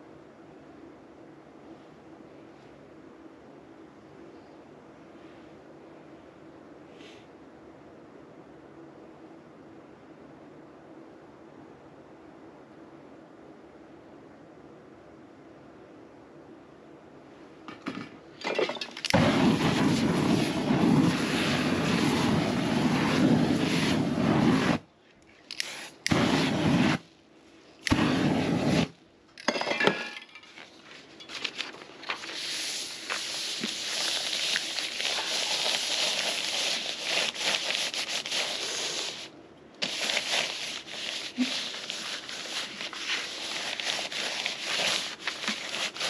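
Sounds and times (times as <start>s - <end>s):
aerosol flame rushing: 19.1s - 29.0s, 32.2s - 46.0s
paper rubbing on canvas: 32.1s - 46.0s.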